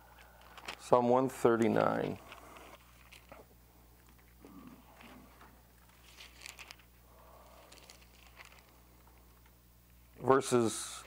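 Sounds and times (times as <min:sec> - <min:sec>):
low steady hum: 0:00.0 - 0:11.0
paper crinkles: 0:00.1 - 0:10.0
thin pages rustling: 0:00.2 - 0:07.0, 0:07.6 - 0:09.4.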